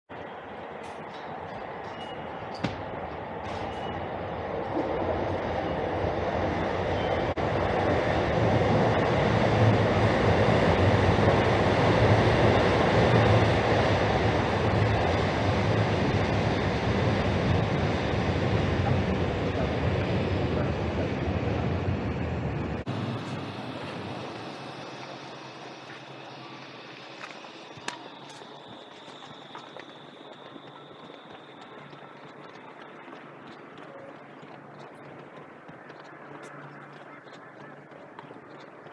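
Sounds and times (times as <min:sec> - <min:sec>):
train rumbling past: 0:00.2 - 0:36.9.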